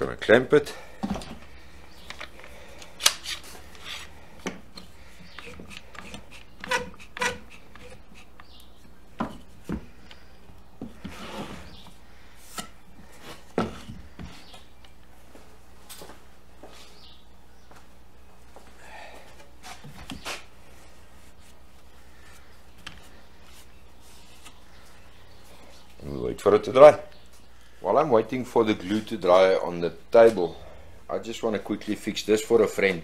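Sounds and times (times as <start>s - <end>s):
handling rasp: 5.2s - 8.7s.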